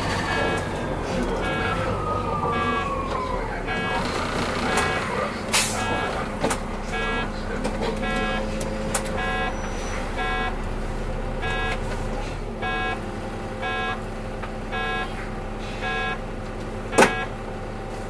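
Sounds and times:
bus engine hum: 0:00.0 - 0:18.0
electronic short beeps: 0:05.8 - 0:06.2, 0:06.9 - 0:07.3, 0:09.2 - 0:09.6, 0:12.6 - 0:13.0, 0:13.6 - 0:14.0, 0:14.7 - 0:15.2, 0:15.8 - 0:16.2, 0:16.9 - 0:17.4.

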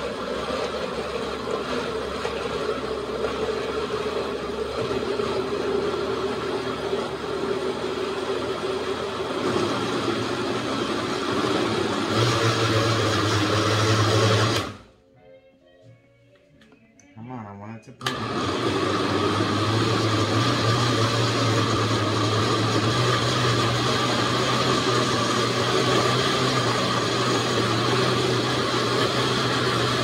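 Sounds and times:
blender motor running: 0:00.0 - 0:14.9, 0:18.0 - 0:30.0.

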